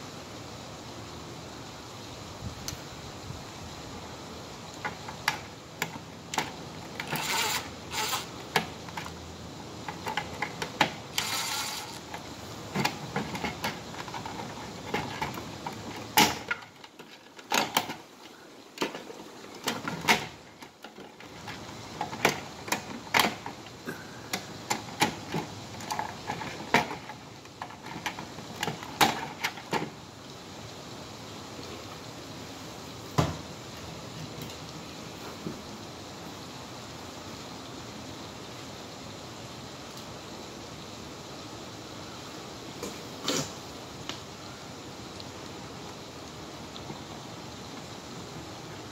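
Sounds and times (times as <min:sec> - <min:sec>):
hands working plastic device loose: 0:04.8 - 0:09.2, 0:09.8 - 0:18.1, 0:18.8 - 0:23.7, 0:24.3 - 0:29.9.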